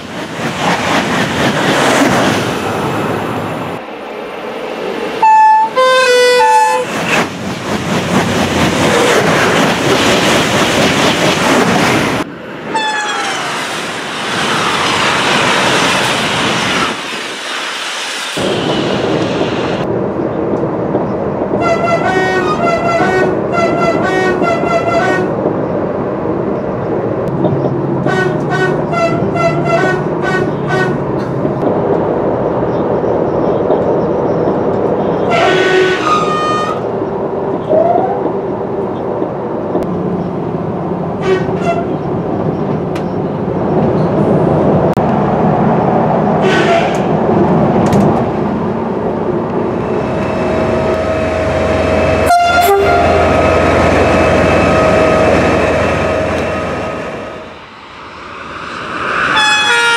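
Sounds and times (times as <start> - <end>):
train running on track: 0.0 - 59.9
train horn blasts: 5.2 - 6.9, 21.6 - 25.3, 28.0 - 31.0, 35.3 - 36.8, 46.4 - 47.0, 50.6 - 57.5, 59.4 - 59.9.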